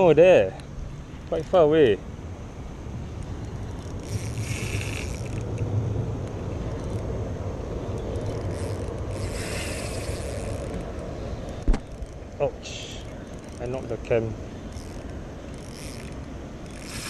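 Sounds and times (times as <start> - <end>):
wind rumble on camera: 2.2 - 12.4
higher hissing: 9.2 - 11.3, 16.8 - 17.0
hand knocking camera: 11.6 - 11.8.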